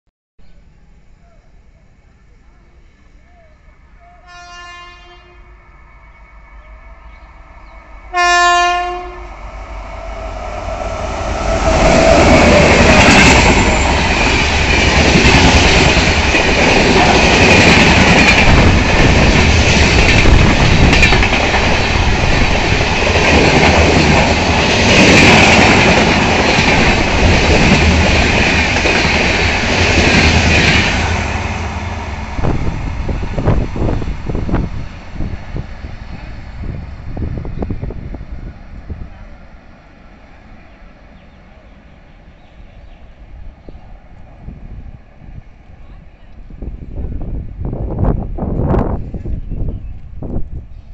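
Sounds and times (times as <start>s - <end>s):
train wheels clattering on rails: 11.7s - 31.2s.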